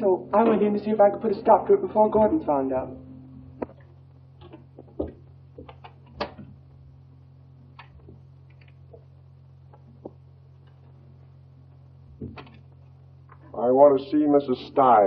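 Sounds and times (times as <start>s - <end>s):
low film soundtrack hum: 0.0s - 15.0s
soft footsteps: 3.3s - 13.6s
small knocks: 3.6s - 6.6s.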